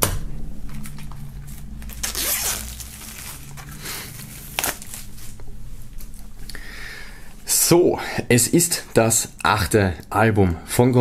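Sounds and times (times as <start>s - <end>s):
plastic film tearing and crinkling: 0.7s - 5.4s.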